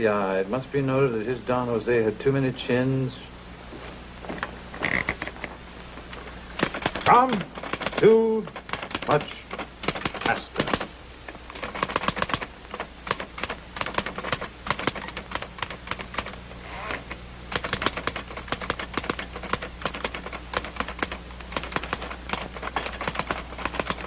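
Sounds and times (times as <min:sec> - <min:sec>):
low steady hum: 0:00.0 - 0:24.0
typewriter key strikes: 0:06.6 - 0:10.9, 0:17.5 - 0:24.0.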